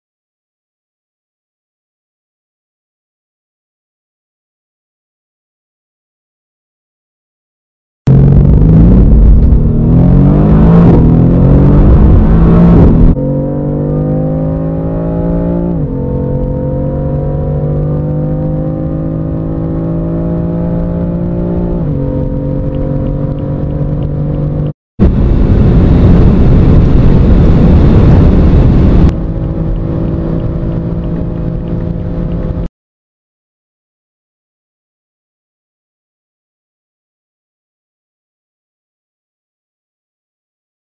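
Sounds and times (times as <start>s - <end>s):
car engine accelerating: 8.1s - 32.7s
wind and road noise: 8.1s - 32.7s.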